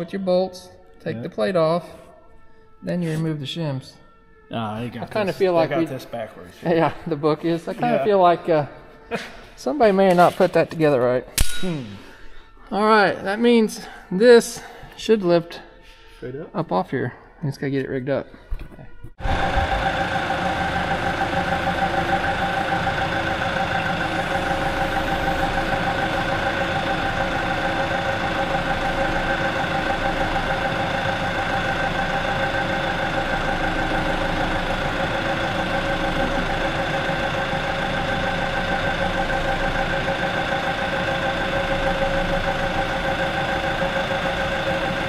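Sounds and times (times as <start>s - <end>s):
constant whine: 0.0s - 16.0s, 19.0s - 45.0s
engine idling: 19.2s - 45.0s.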